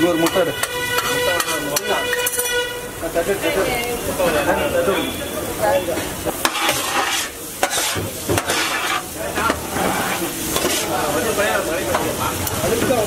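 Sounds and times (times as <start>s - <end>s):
egg sizzling: 0.0s - 13.0s
metal scraper on a griddle: 0.1s - 2.7s, 6.4s - 11.1s.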